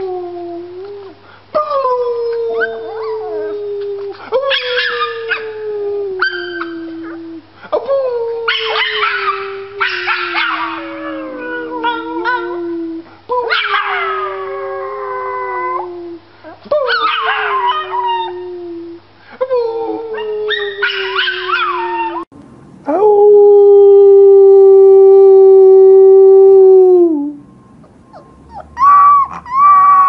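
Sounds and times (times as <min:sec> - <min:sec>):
puppy howling: 0:00.0 - 0:07.4, 0:08.2 - 0:19.0, 0:19.6 - 0:22.3, 0:22.9 - 0:30.0
high puppy cries: 0:02.5 - 0:05.6, 0:06.2 - 0:07.2, 0:08.5 - 0:12.6, 0:16.7 - 0:18.4, 0:19.9 - 0:22.3, 0:27.8 - 0:30.0
woman howling: 0:08.2 - 0:16.1, 0:22.9 - 0:27.4.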